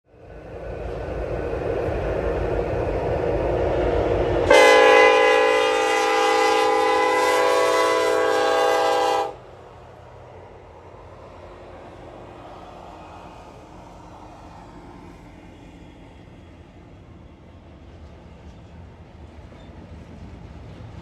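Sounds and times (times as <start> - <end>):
diesel locomotive engine and wheels: 0.0 - 21.0
low train rumble: 0.1 - 21.0
train air horn blast: 4.4 - 9.5.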